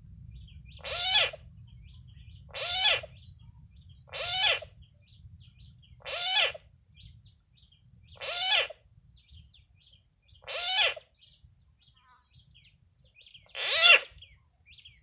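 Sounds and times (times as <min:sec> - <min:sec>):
frog call from loudspeaker: 0:00.8 - 0:01.4, 0:02.5 - 0:03.1, 0:04.1 - 0:04.7, 0:06.0 - 0:06.6, 0:08.2 - 0:08.8, 0:10.4 - 0:11.1, 0:13.4 - 0:14.2.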